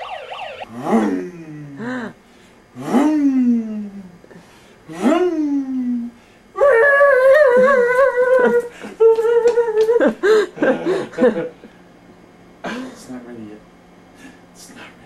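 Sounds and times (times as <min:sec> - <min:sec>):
short vocal sounds: 0:00.7 - 0:02.2.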